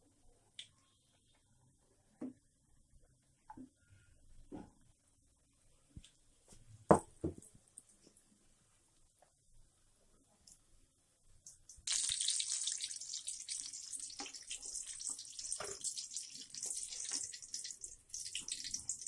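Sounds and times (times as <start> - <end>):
chillies sizzling in hot oil: 11.5 - 19.0.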